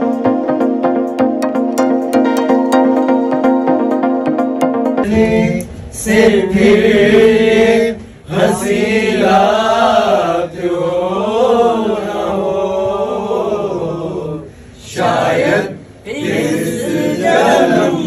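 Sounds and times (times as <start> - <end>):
men singing a chant: 5.0 - 18.0.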